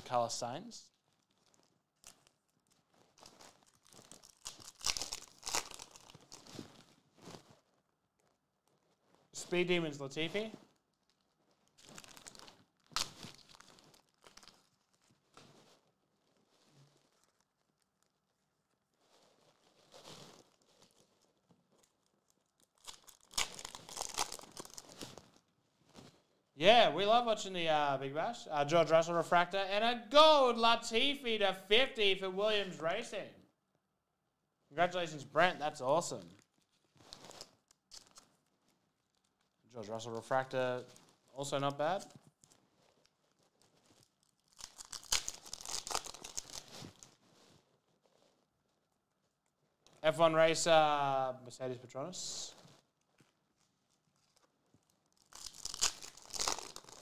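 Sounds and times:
foil wrapper tearing and crinkling: 0:00.9 - 0:07.7, 0:10.7 - 0:25.5, 0:36.3 - 0:39.6, 0:42.0 - 0:48.5, 0:52.5 - 0:57.0.

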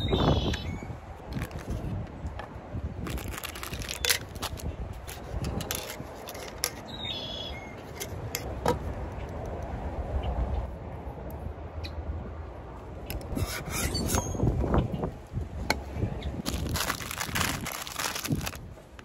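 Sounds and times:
camp stove parts clicking and rattling: 0:01.3 - 0:06.9, 0:07.8 - 0:09.6.

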